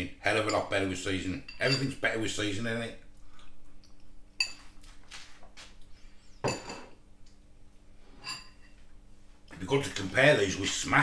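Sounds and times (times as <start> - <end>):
metal spoon clinking on ceramic bowl: 1.5 - 2.0.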